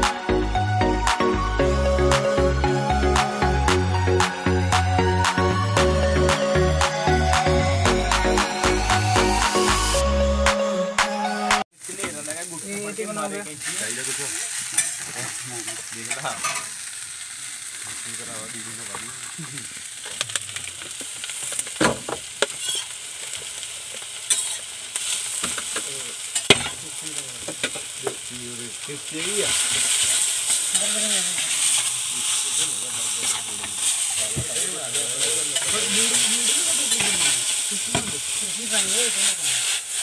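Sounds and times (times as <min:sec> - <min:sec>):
noodles sizzling in a wok: 0:08.3 - 0:10.0, 0:11.7 - 0:40.0.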